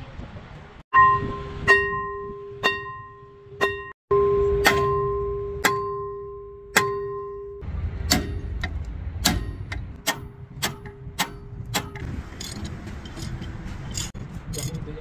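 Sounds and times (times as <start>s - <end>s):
hammer striking steel: 1.0s - 14.8s.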